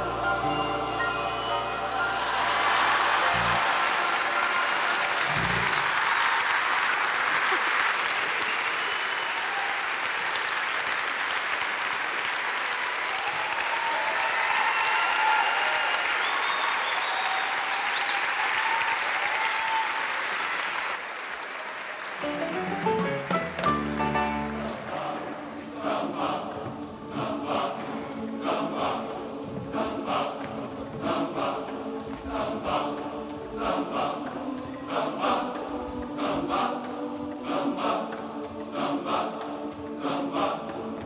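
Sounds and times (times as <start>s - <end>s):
audience applauding: 2.0s - 26.2s
band music: 22.2s - 25.2s.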